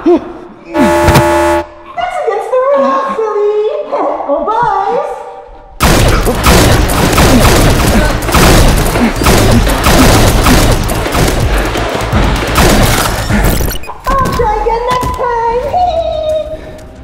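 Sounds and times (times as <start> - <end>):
rapid blaster shots: 5.8 - 13.8.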